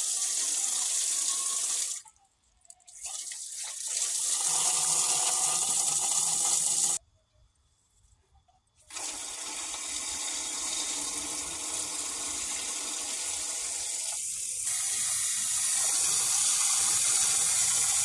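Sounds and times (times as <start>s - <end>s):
hose spraying water into metal pan: 8.9s - 18.0s.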